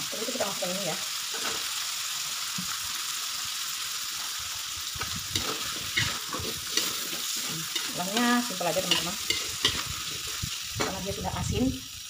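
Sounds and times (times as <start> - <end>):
squid sizzling in oil: 0.0 - 12.0
metal spatula scraping a wok: 5.2 - 11.2.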